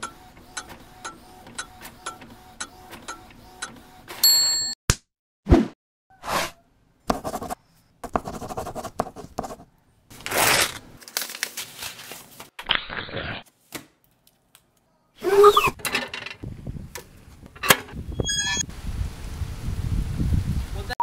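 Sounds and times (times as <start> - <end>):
pen writing on paper: 7.1 - 9.7.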